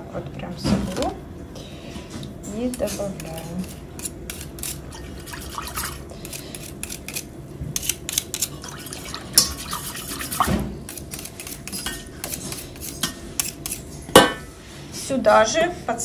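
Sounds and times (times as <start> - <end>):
utensils clinking on dishes: 7.8 - 14.5.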